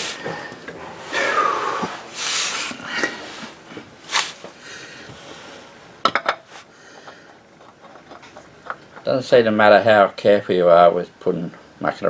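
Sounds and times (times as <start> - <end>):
oil filter rubbing and scraping: 7.6 - 9.1.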